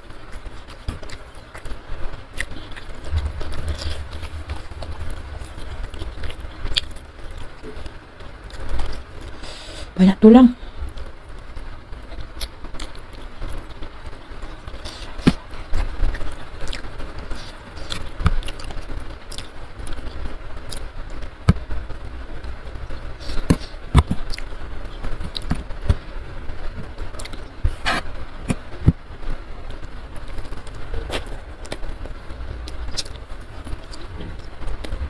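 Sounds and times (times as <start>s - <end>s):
low background noise: 0.0s - 35.0s
chewing and wet mouth clicks: 32.9s - 34.5s.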